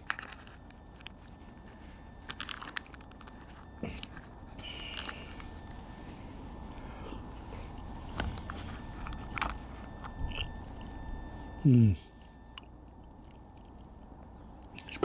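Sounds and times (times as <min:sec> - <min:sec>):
chewing: 0:07.1 - 0:11.0, 0:12.5 - 0:15.0.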